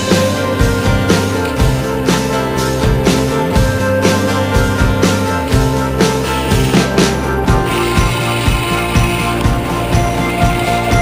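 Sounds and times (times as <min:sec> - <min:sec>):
rock music with drum beat: 0:00.0 - 0:11.0.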